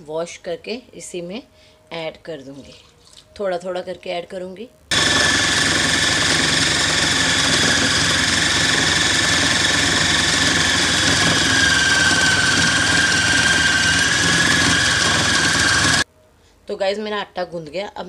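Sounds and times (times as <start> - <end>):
food processor motor running: 4.9 - 16.0
high whine: 4.9 - 16.0.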